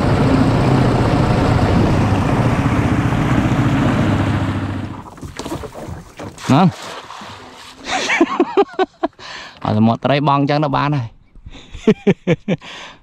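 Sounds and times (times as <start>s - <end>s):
boat motor running: 0.0s - 8.4s
water rushing: 0.0s - 8.5s
wind: 0.0s - 13.0s.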